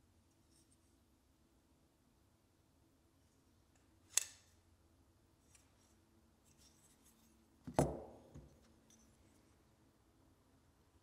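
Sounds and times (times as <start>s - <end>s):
folding knife metal clicks: 4.1s - 4.5s.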